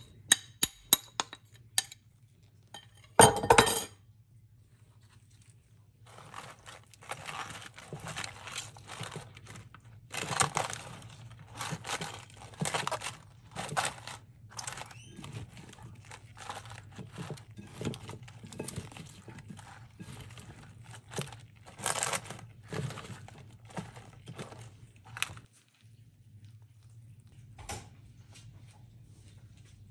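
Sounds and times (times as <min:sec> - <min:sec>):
salad leaves rustling and crunching: 0:04.7 - 0:26.1.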